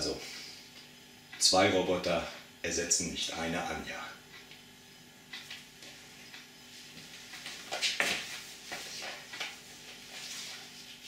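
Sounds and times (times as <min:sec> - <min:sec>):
fabric rustles: 0:06.7 - 0:11.0
sandals scuffing on tiles: 0:06.7 - 0:11.0.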